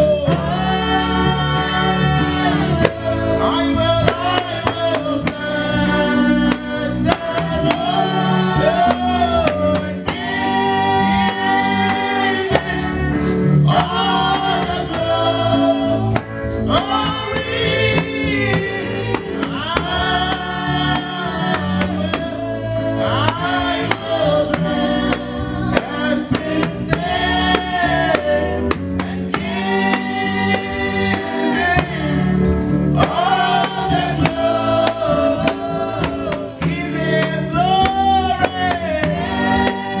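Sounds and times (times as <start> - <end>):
woman singing into a microphone: 0.0 - 4.8
backing voices singing: 0.0 - 40.0
steady percussion beat: 0.0 - 40.0.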